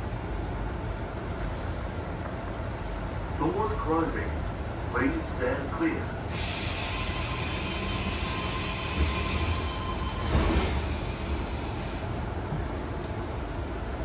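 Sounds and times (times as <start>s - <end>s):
air hissing: 6.3s - 12.0s.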